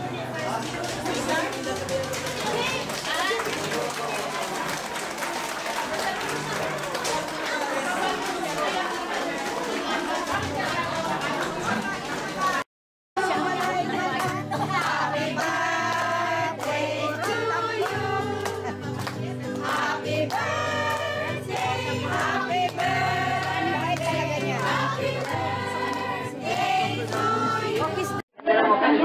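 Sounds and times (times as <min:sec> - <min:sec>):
people clapping: 0:00.0 - 0:28.2
women singing in chorus: 0:13.2 - 0:18.8, 0:19.6 - 0:28.2.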